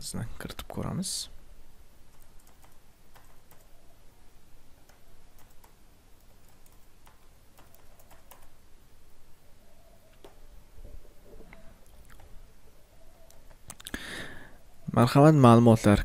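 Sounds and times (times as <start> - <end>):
faint keyboard keystrokes: 2.1 - 3.7, 4.8 - 8.5.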